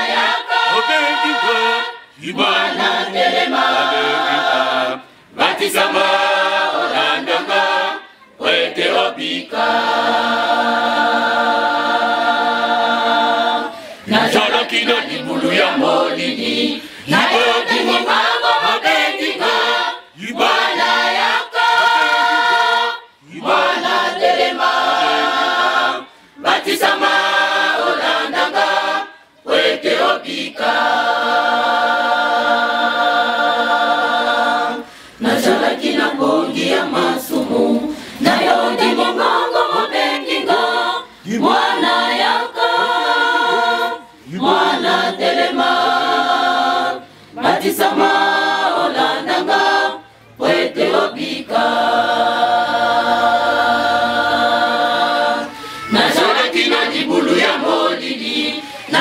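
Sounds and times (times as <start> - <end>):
women's choir singing: 0.0 - 59.0.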